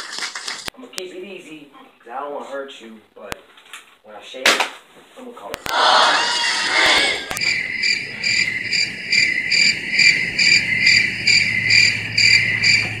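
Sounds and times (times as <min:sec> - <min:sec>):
cricket chirping: 0:07.3 - 0:13.0.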